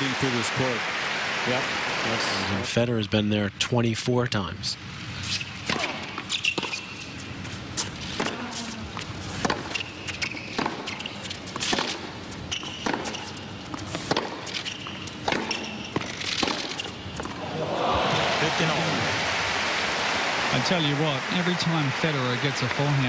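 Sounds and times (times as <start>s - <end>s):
sneaker squeaks on court: 5.3s - 7.2s, 9.5s - 11.9s, 12.5s - 13.4s, 14.0s - 17.0s
racquet hitting tennis ball: 9.4s - 17.5s.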